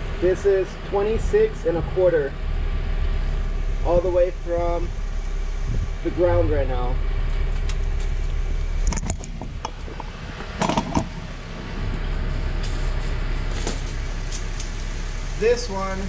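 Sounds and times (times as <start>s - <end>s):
car engine idling: 0.0s - 16.0s
footstep clicks and scuffs: 7.3s - 11.1s.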